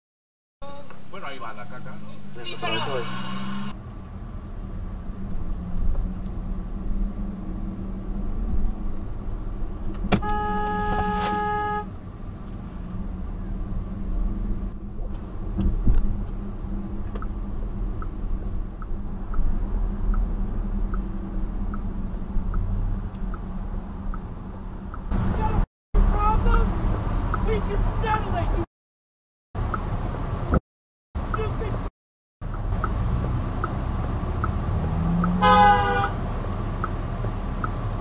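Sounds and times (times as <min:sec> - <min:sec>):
car driving rumble: 0:00.6 - 0:28.7, 0:31.2 - 0:38.0
car horn: 0:02.4 - 0:03.8, 0:10.1 - 0:11.9, 0:35.3 - 0:36.3
light ticking: 0:37.6 - 0:37.8.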